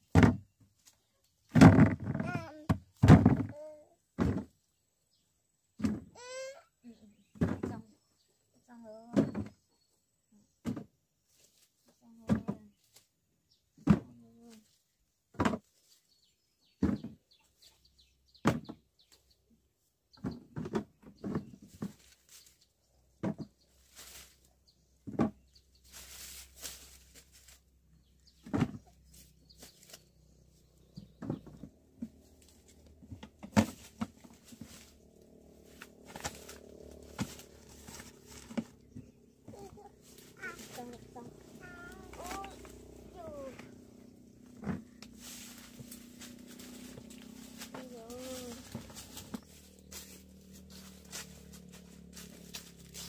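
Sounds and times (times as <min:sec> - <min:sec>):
rustling: 0:23.4 - 0:53.0
blade chopping sugarcane: 0:35.6 - 0:38.7.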